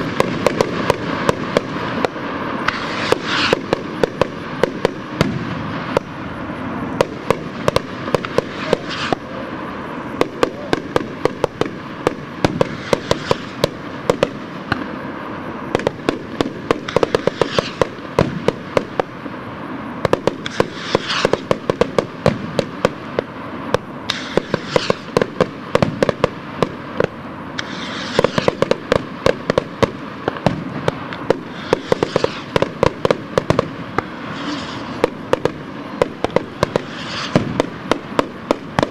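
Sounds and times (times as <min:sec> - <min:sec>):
firework pops and bangs: 0:00.0 - 0:06.2, 0:06.9 - 0:09.3, 0:10.2 - 0:15.0, 0:15.7 - 0:19.2, 0:20.0 - 0:38.9
rocket hissing as it climbs: 0:01.0 - 0:10.1, 0:16.8 - 0:17.9, 0:19.7 - 0:21.6, 0:23.5 - 0:25.2, 0:27.6 - 0:28.8, 0:30.9 - 0:37.9.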